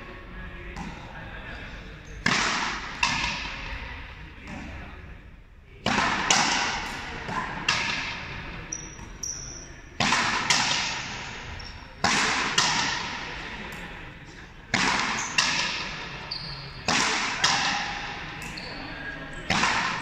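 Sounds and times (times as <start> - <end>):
rubber ball hitting wall echoing: 5.8 - 8.4, 10.0 - 13.5, 14.7 - 16.2, 16.9 - 18.8, 19.4 - 20.0.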